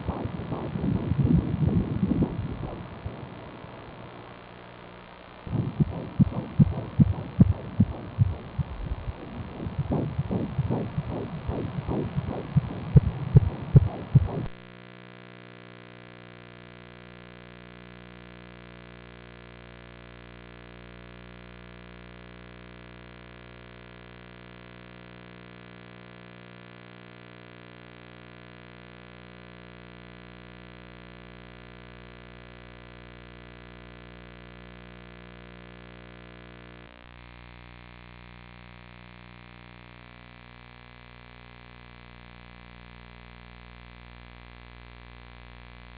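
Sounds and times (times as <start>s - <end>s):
fetal heartbeat doppler pulses: 0.0s - 3.4s, 5.5s - 14.6s
electrical hum: 0.0s - 14.7s.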